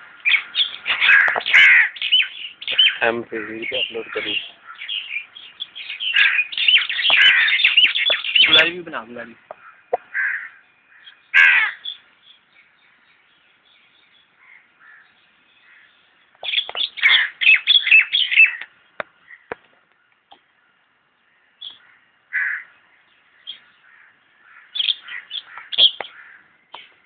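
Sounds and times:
crows cawing: 0.0 - 8.7, 9.5 - 12.0, 14.4 - 19.6, 20.6 - 27.0.

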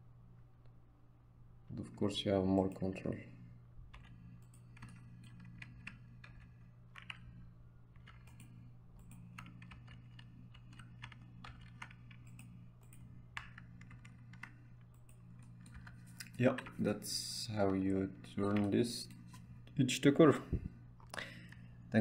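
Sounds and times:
steady low hum: 0.0 - 22.0
keyboard and mouse clicks: 3.9 - 7.4, 8.0 - 16.9, 17.6 - 19.5.

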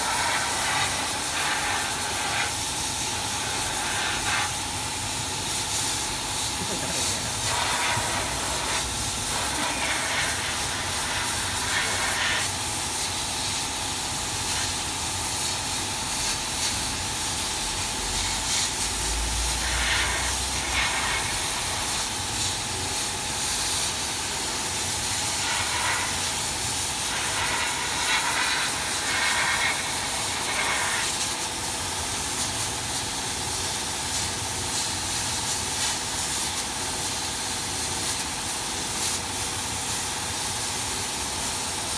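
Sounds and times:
laser cutter hissing: 0.0 - 41.9.

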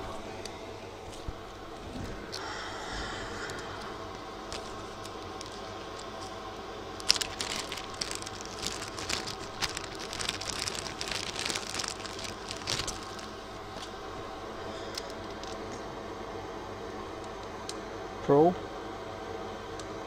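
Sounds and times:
steady background hum: 0.0 - 20.0
rustling and crinkling: 0.9 - 2.4, 4.4 - 14.0, 14.9 - 15.7.

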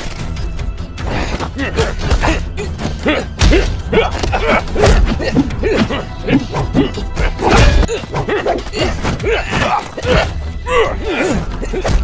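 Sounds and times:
background music: 0.0 - 12.0
punches and blows hitting: 1.3 - 10.3.

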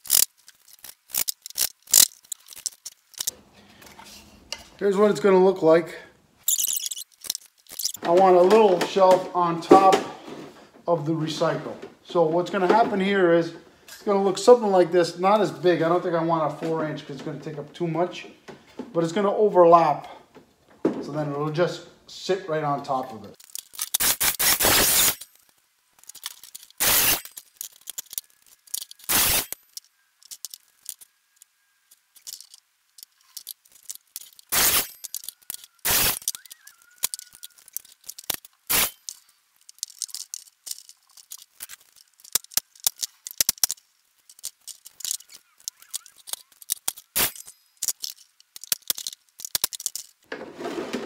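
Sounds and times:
wooden boards and tools clattering: 6.6 - 10.8, 11.4 - 13.1, 32.2 - 51.0.

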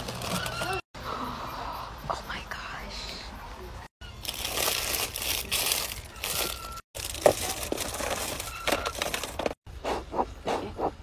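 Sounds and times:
plastic packaging crinkling: 0.0 - 0.8, 4.1 - 9.6.

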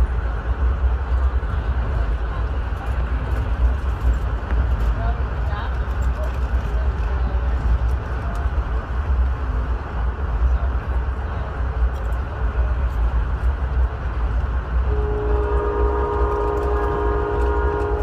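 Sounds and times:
train rumbling on track: 0.0 - 18.0
train horn chord: 14.9 - 18.0.

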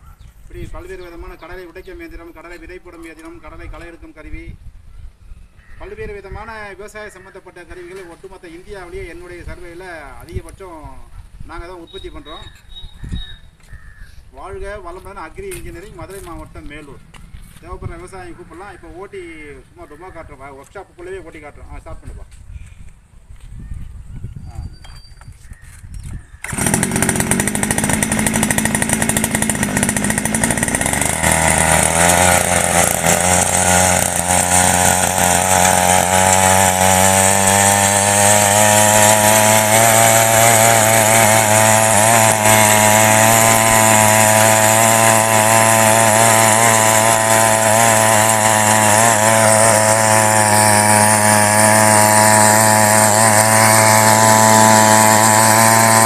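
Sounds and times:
small petrol engine running: 26.4 - 56.0.

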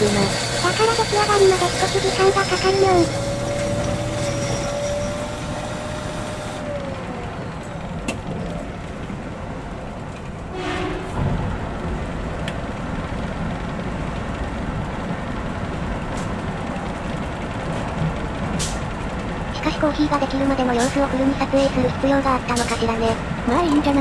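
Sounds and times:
coffee machine grinding beans: 0.0 - 6.7
electric train rumbling: 0.0 - 24.0.

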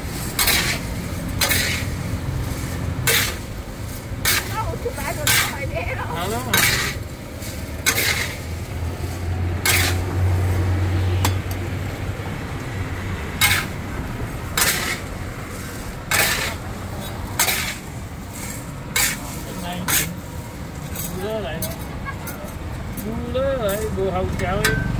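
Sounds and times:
spatula scraping sand in wok: 0.0 - 11.0, 13.3 - 20.2
low traffic hum: 0.0 - 24.9.

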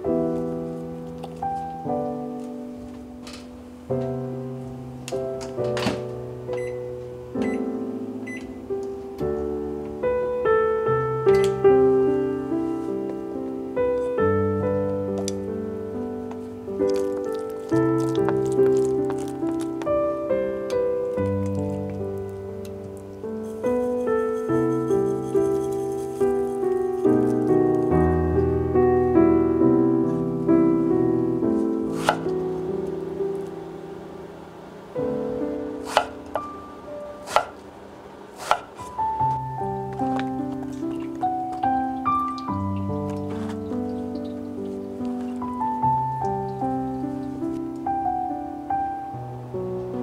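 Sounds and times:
gentle piano music: 0.0 - 50.0
knife chopping on wooden board: 32.0 - 32.3, 35.8 - 36.2, 37.3 - 37.6, 38.4 - 38.9.

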